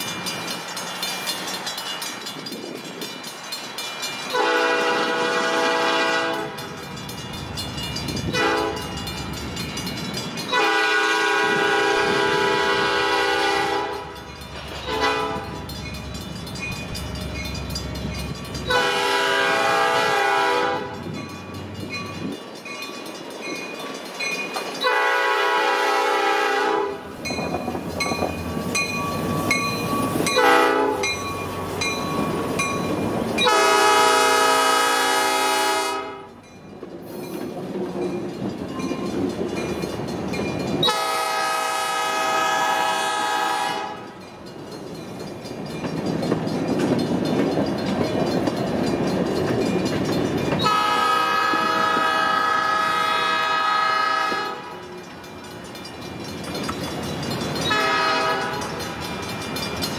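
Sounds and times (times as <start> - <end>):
locomotive rumble: 0.0 - 59.9
train wheels on rails: 0.0 - 59.9
locomotive air horn blasts: 4.3 - 6.6, 8.3 - 8.8, 10.5 - 14.2, 14.8 - 15.6, 18.7 - 21.0, 24.8 - 27.0, 30.4 - 31.1, 33.4 - 36.3, 40.8 - 44.1, 50.6 - 54.8, 57.7 - 58.6.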